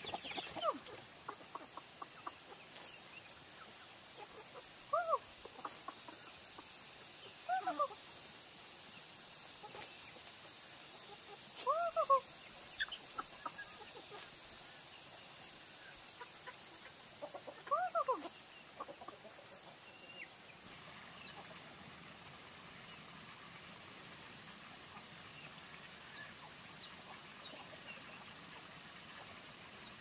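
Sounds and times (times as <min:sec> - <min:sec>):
chickens clucking: 0:00.0 - 0:08.3, 0:09.5 - 0:21.9.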